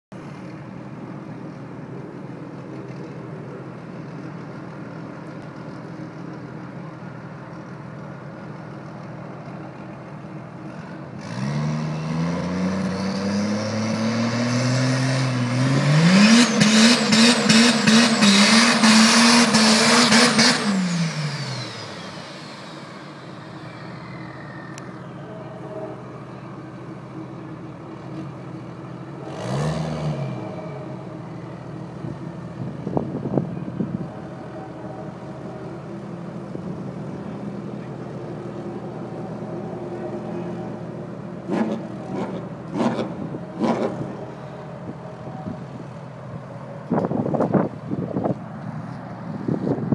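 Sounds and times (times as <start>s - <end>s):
diesel truck engine revving: 10.5s - 48.6s.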